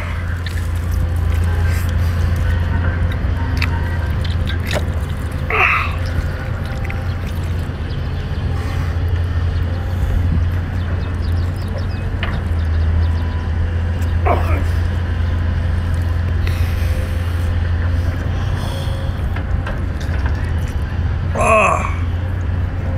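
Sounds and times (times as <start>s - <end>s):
wet chewing and slurping: 0.0s - 12.8s, 15.8s - 21.0s
steady low rumble: 0.0s - 22.9s.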